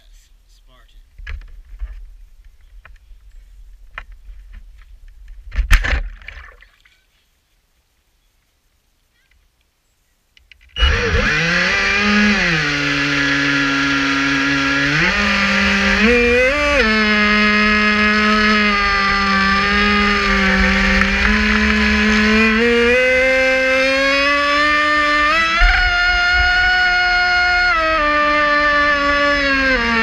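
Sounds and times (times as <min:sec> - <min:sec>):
electric boat motor whining: 0:10.8 - 0:30.0.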